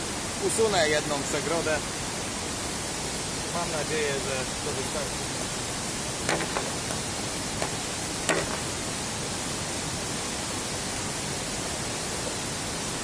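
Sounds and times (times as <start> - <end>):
fast-flowing stream: 0.0 - 13.0
machete striking bamboo: 6.3 - 7.0, 7.6 - 8.8.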